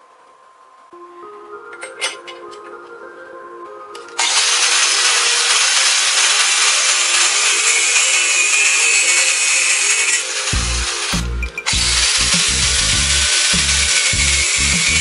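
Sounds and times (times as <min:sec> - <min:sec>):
angle grinder cutting steel: 0:04.2 - 0:15.0.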